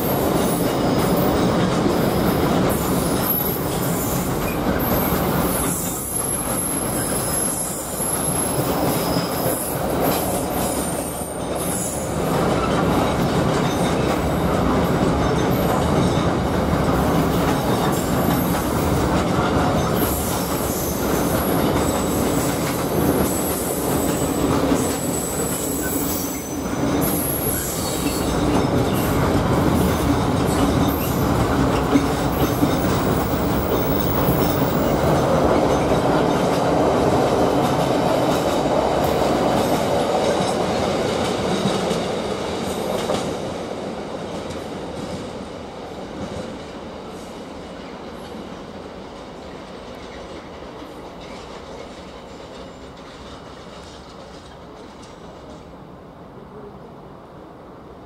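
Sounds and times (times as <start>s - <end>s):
train wheels on rails: 0.0s - 56.4s
high-pitched wheel squeals: 25.0s - 29.1s.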